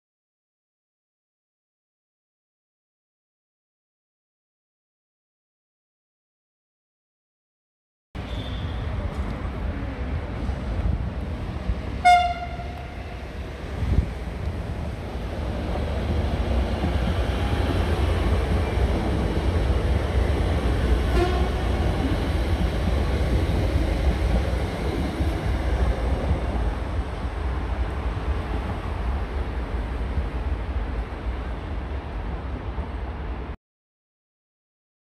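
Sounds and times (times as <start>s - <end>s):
train wheels rumbling on rails: 8.2s - 33.6s
train horn toot: 12.0s - 13.0s, 21.1s - 21.6s.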